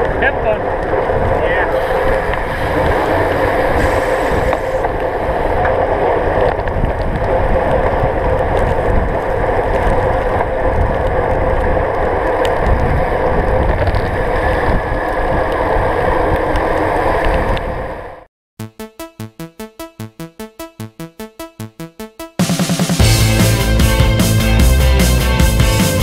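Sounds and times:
wind buffeting microphone: 0:00.0 - 0:18.1
tyres hissing on wet road: 0:01.7 - 0:05.6.

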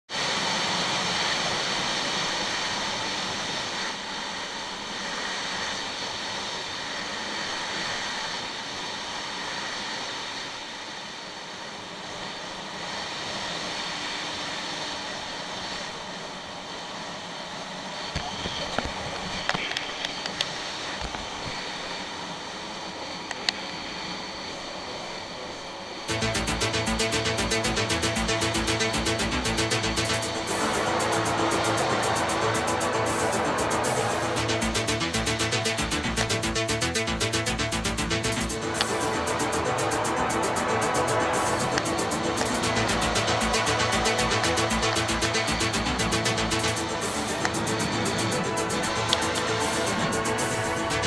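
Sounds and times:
jet ski running on water: 0:26.2 - 0:51.0.

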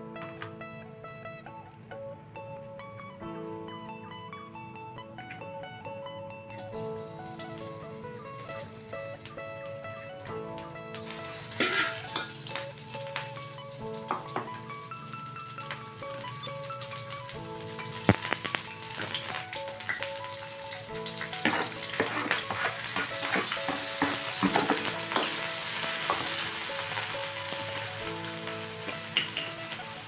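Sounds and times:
hot oil sizzling in a wok: 0:06.6 - 0:30.0.

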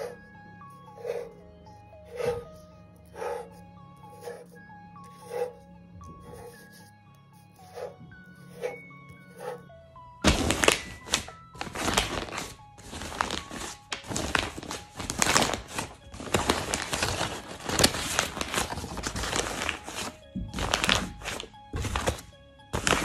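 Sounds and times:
paper crumpling: 0:10.2 - 0:23.0.

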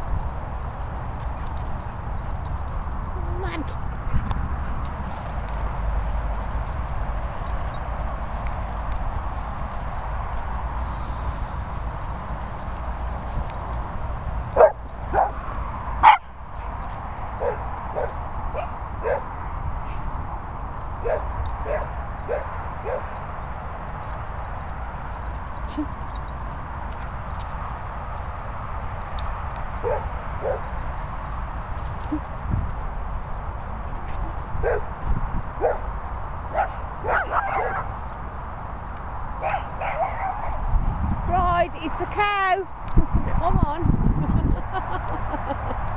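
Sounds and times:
dogs barking: 0:14.5 - 0:19.4, 0:21.0 - 0:23.3, 0:29.8 - 0:30.8, 0:34.6 - 0:35.0, 0:35.6 - 0:38.0, 0:39.3 - 0:40.6.

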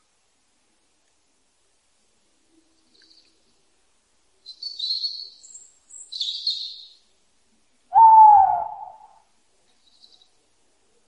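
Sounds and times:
low bird hooting call: 0:07.9 - 0:09.2.

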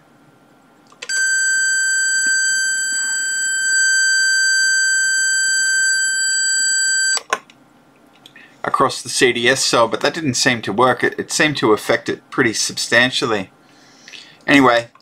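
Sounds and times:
high-pitched alarm buzzer: 0:01.1 - 0:07.2.

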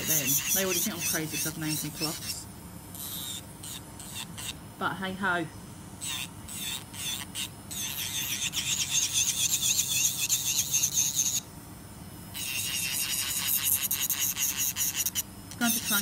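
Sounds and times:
electric nail file whining: 0:00.0 - 0:04.6, 0:06.0 - 0:11.5, 0:12.3 - 0:16.0.

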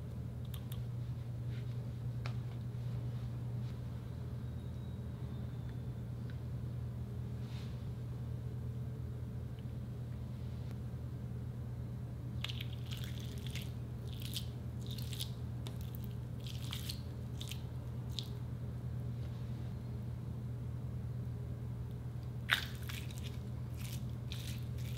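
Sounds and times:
steady low hum: 0:00.0 - 0:24.9
wet squelching crackles: 0:12.4 - 0:18.4, 0:22.5 - 0:24.9.

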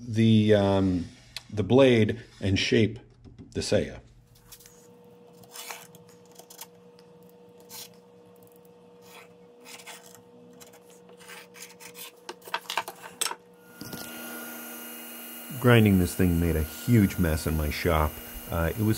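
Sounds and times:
pen scratching on wood: 0:09.0 - 0:12.3
blade rubbing on wood: 0:09.0 - 0:12.4.

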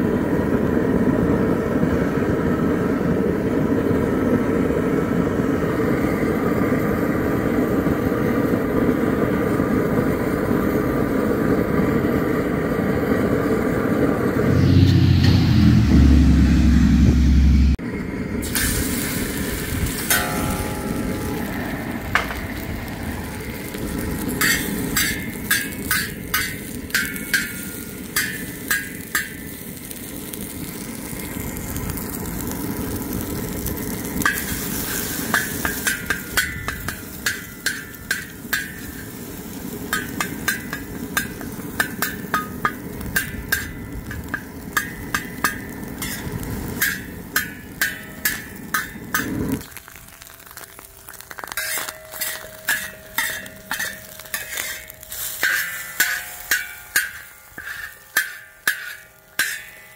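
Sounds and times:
gas burner roaring: 0:00.0 - 0:59.9
eggs sizzling: 0:18.4 - 0:59.9
metal spatula scraping steel: 0:19.9 - 0:21.4, 0:24.2 - 0:29.6, 0:34.2 - 0:49.6, 0:51.5 - 0:59.9.

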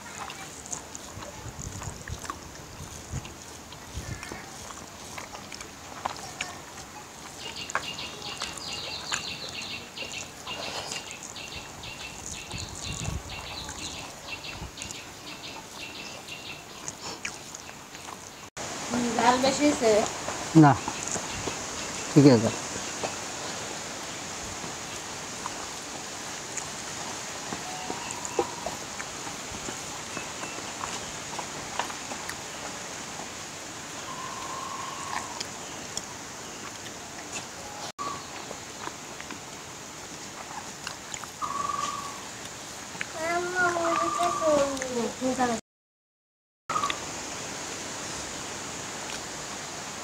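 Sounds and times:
man chewing and lip smacking: 0:00.2 - 0:18.5, 0:35.1 - 0:37.6, 0:40.1 - 0:41.4
steady background hiss: 0:03.3 - 0:45.6, 0:46.8 - 0:50.0
small bird chirping: 0:07.3 - 0:18.5, 0:34.0 - 0:36.7, 0:41.4 - 0:42.2, 0:43.2 - 0:44.9.

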